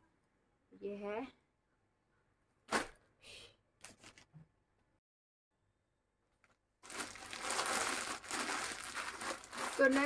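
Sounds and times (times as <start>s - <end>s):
plastic packaging crinkling: 6.8s - 10.0s.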